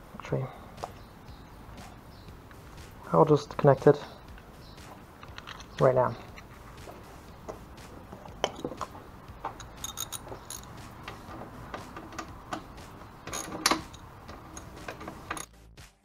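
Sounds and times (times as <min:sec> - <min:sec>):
music: 0:00.0 - 0:16.0
socket ratchet clicking: 0:05.2 - 0:06.5, 0:08.3 - 0:15.5
hand tools clinking: 0:05.2 - 0:15.5
ringing metal taps: 0:07.4 - 0:15.5.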